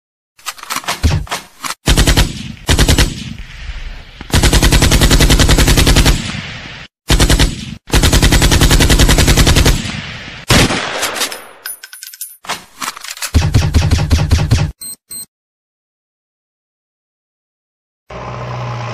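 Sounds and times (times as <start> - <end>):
machine-gun fire: 1.9 - 3.4, 4.3 - 6.5, 7.1 - 11.4.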